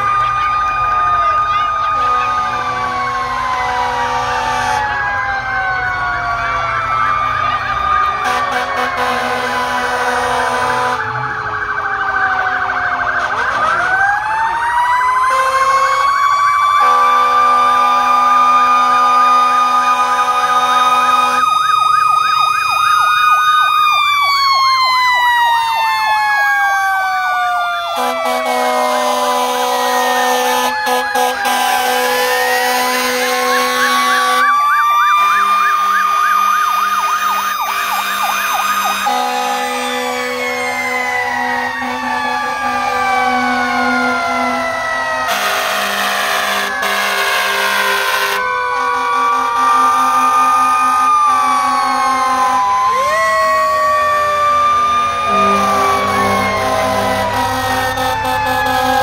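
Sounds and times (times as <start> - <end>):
siren wailing: 0.0 - 59.0
siren warbling rapidly: 0.0 - 59.0
fire engine horn blasts: 1.2 - 5.3, 8.0 - 11.3, 13.0 - 14.0, 15.2 - 16.1, 16.7 - 21.6, 27.9 - 53.0, 54.2 - 59.0.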